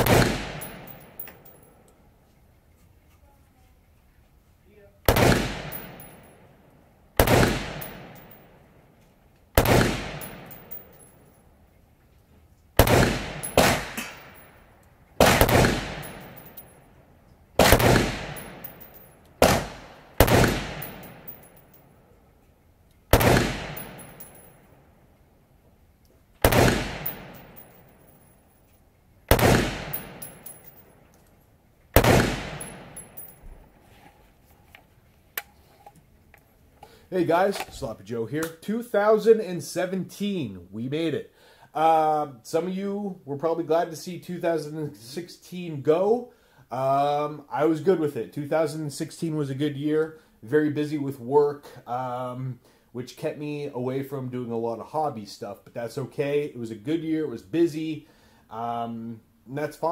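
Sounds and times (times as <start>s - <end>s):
rifle shots echoing: 0.0s - 1.6s, 5.1s - 6.4s, 7.2s - 8.5s, 9.6s - 11.1s, 12.8s - 14.6s, 15.2s - 16.7s, 17.6s - 21.6s, 23.1s - 24.5s, 26.4s - 28.1s, 29.3s - 30.8s, 32.0s - 33.4s.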